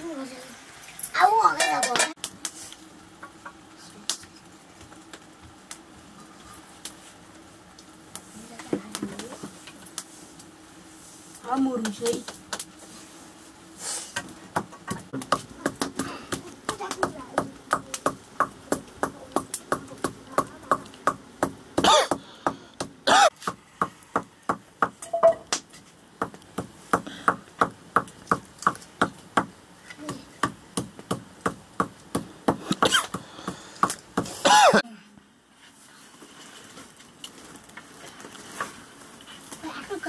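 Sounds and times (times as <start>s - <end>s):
pestle pounding in wooden mortar: 14.5s - 25.0s, 26.2s - 34.3s.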